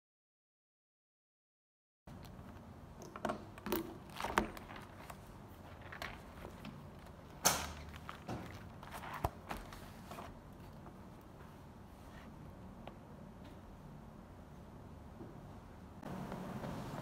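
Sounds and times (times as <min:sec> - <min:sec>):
page flip: 0:04.0 - 0:10.8
paper rustling: 0:04.0 - 0:11.0.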